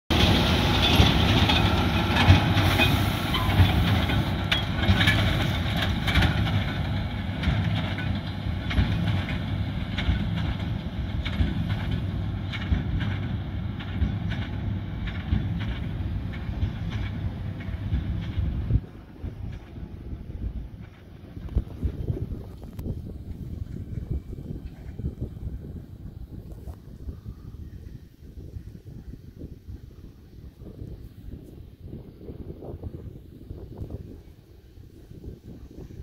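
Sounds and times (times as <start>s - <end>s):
tractor running: 0.1s - 27.0s.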